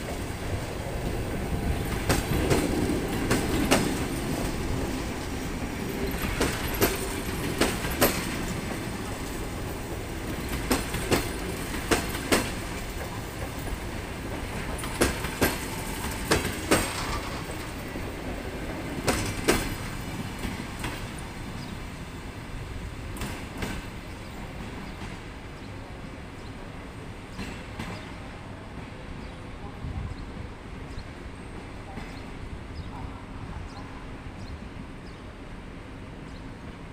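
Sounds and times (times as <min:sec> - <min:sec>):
train wheels clicking over rail joints: 0:00.0 - 0:21.7
train rumble: 0:00.0 - 0:36.9.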